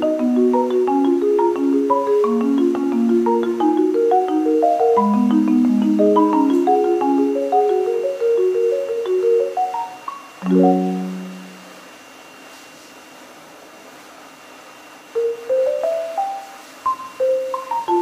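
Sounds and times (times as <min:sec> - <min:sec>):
mallet instrument melody: 0:00.0 - 0:11.7, 0:17.1 - 0:18.0.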